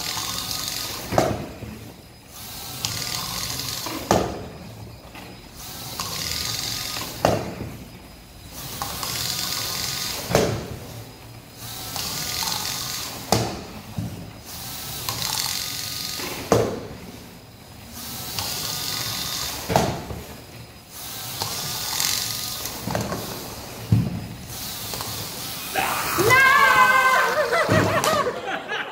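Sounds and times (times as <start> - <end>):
robot motors whirring: 0.0 - 4.1, 17.8 - 28.2.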